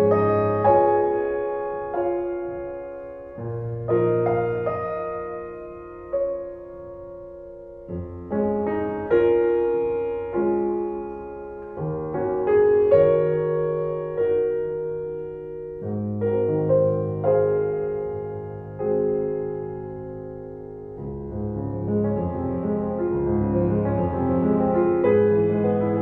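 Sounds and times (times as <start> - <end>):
slow solo piano music: 0.0 - 26.0.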